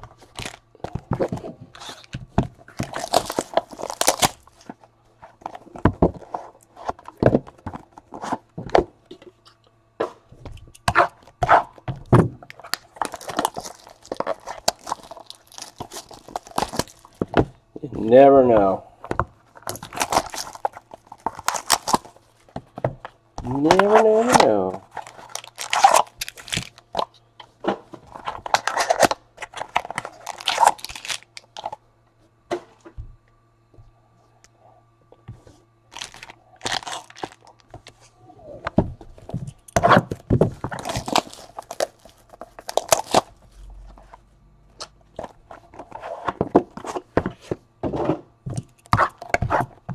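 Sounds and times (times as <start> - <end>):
crinkling foil packs and cardboard: 0.0 - 8.5, 12.5 - 17.8, 19.4 - 22.6, 23.4 - 27.1, 27.9 - 31.8, 35.9 - 38.1, 39.1 - 44.2, 48.6 - 49.9.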